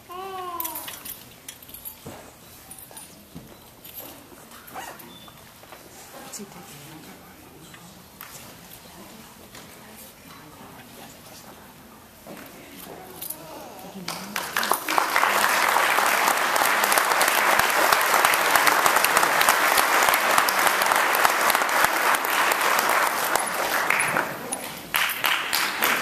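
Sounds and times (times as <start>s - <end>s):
audience applauding: 14.0s - 26.0s.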